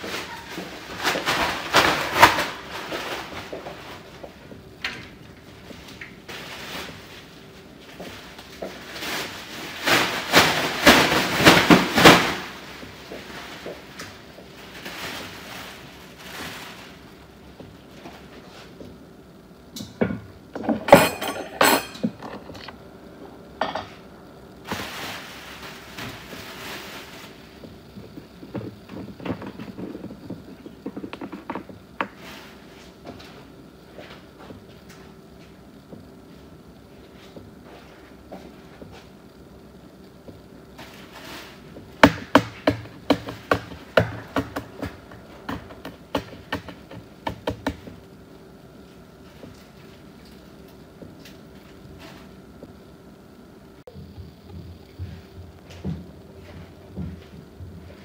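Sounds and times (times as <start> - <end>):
dishes and utensils clattering: 20.6 - 22.7.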